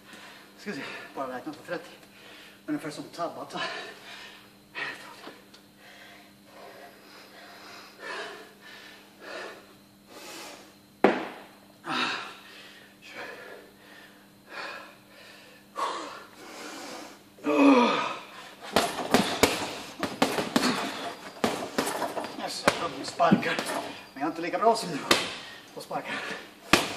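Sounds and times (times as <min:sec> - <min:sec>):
man panting hard: 0:05.8 - 0:10.8, 0:11.8 - 0:21.3, 0:25.0 - 0:26.5
gloved punches on heavy bag: 0:18.6 - 0:23.9, 0:25.0 - 0:25.5, 0:26.7 - 0:26.9.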